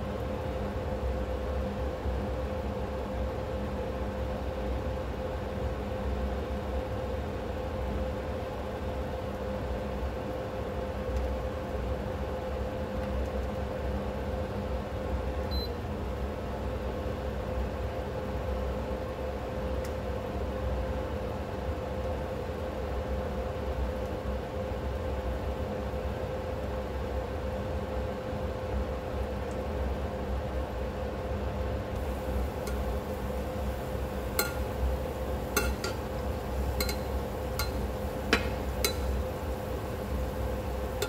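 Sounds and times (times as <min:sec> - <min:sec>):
food frying in oil: 0:32.0 - 0:41.0
steady hum: 0:32.0 - 0:41.0
spatula clinking against pan: 0:34.3 - 0:34.8, 0:35.5 - 0:39.3.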